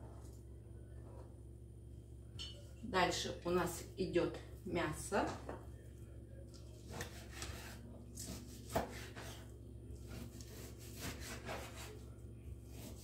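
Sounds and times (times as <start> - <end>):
knife sawing through meat: 10.1 - 12.0, 12.7 - 13.0.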